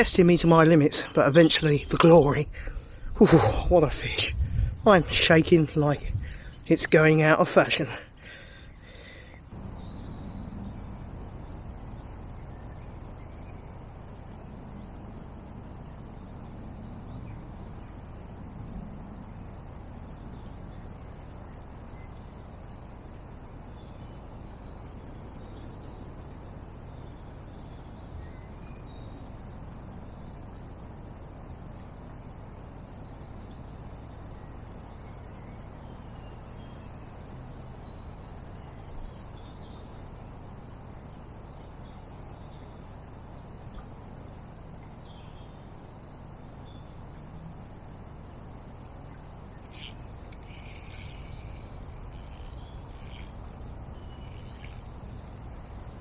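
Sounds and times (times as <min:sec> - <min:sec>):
low background rush: 0:00.0 - 0:56.0
songbird trilling: 0:49.1 - 0:56.0.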